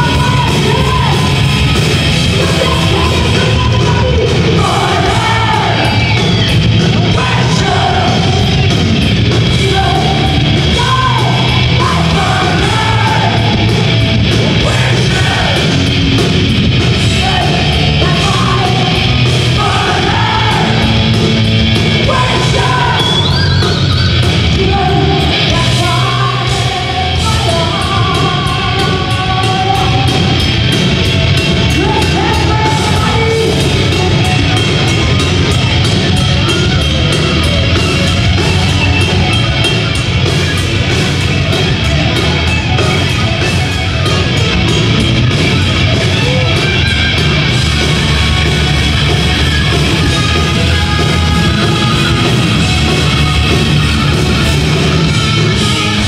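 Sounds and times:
distorted electric guitars: 0.0 - 56.0
drum kit: 0.0 - 56.0
woman singing and yelling: 25.5 - 30.1.

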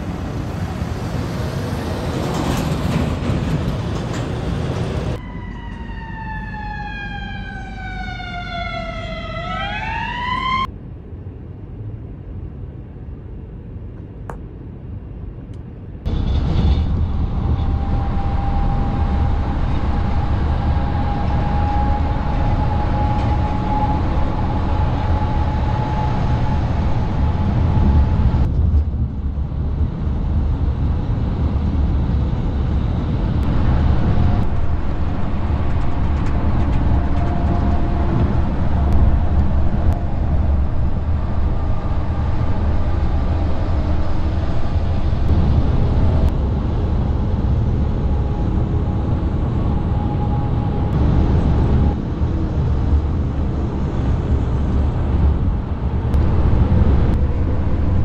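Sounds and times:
heavy road traffic: 0.0 - 58.0
wailing tone falling in pitch: 5.2 - 10.7.

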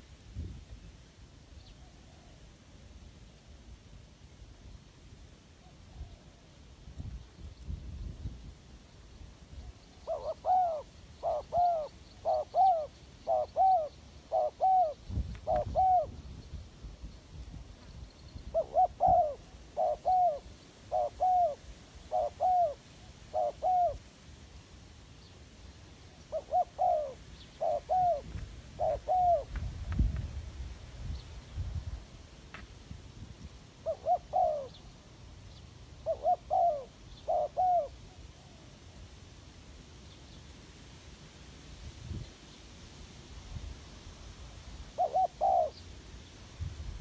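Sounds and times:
dove cooing: 10.0 - 16.2, 18.4 - 24.0, 26.3 - 29.6, 33.8 - 34.9, 36.0 - 38.7, 44.9 - 45.8.

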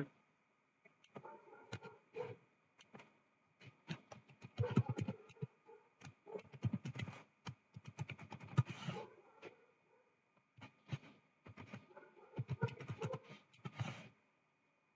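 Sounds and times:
typing on computer keyboard: 3.8 - 8.9, 12.4 - 13.2.

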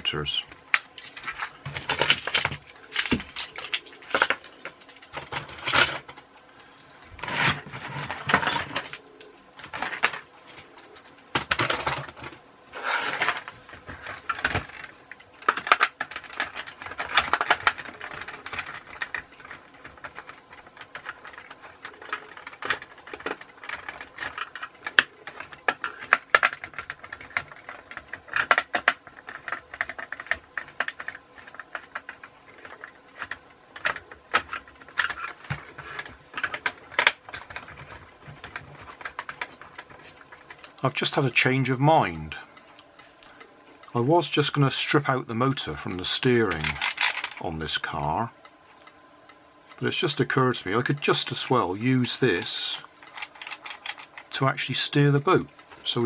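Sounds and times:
plastic parts clicking and clattering: 0.0 - 41.5, 45.9 - 48.0, 49.8 - 56.0.

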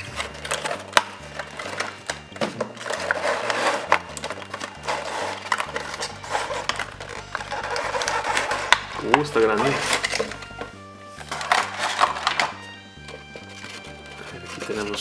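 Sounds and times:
plastic sliding out of cardboard box: 0.0 - 10.6, 11.2 - 12.6
cardboard and plastic clicks: 0.0 - 15.0
quiet background music: 0.0 - 15.0.

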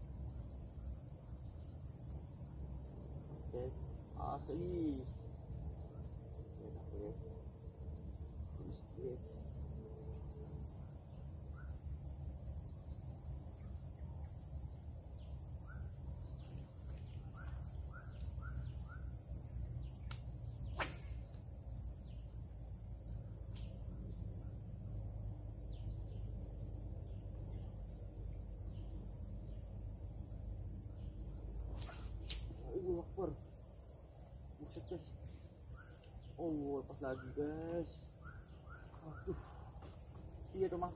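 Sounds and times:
insects chirring: 0.0 - 40.9
sharp click: 31.8 - 32.5.

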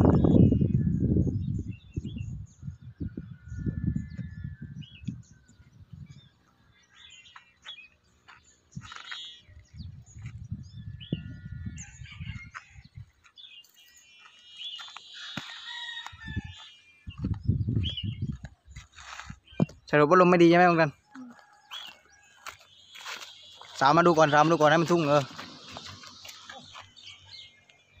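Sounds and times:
wind rumbling on microphone: 0.0 - 6.9, 8.6 - 13.2, 15.9 - 19.9
small birds chirping: 0.0 - 28.0
rooster crowing: 15.2 - 16.6.

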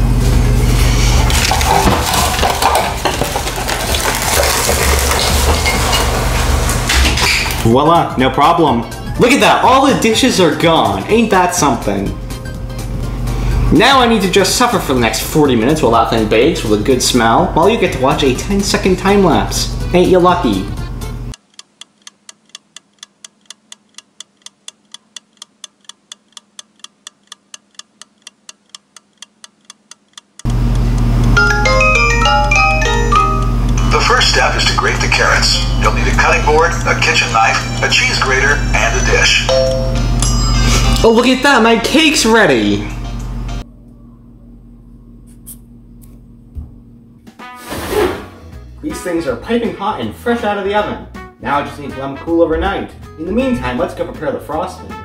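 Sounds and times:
dishes clattering: 1.2 - 7.6
clock ticking quickly: 21.3 - 31.4.

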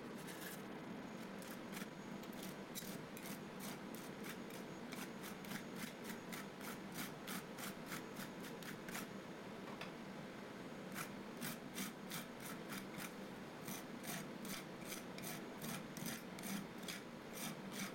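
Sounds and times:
metal spatulas scraping cold plate: 1.4 - 6.4, 13.7 - 17.9.

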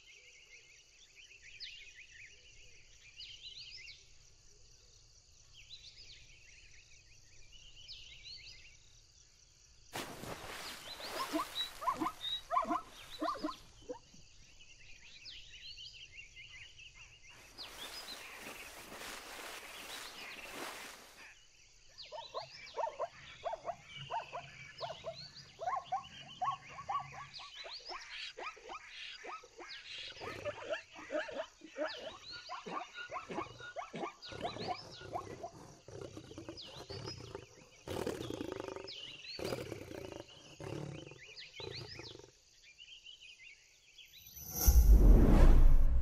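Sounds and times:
bird chirps: 10.5 - 21.0
wild animal calls: 11.0 - 14.2, 22.8 - 42.4.

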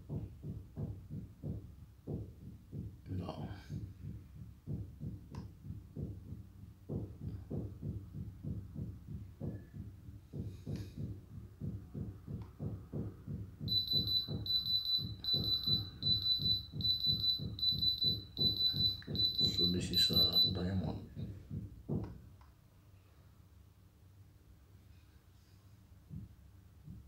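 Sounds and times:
high-pitched tester beeping: 13.7 - 21.0
low fast pulsing: 13.7 - 21.1.

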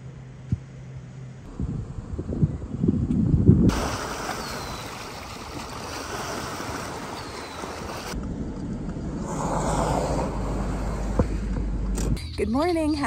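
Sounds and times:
wind rumble on microphone: 1.4 - 4.8
lake waves: 3.7 - 8.2.

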